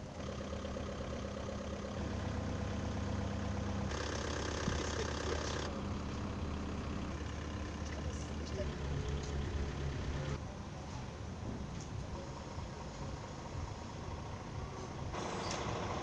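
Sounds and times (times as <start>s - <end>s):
truck engine idling: 0.0s - 16.0s.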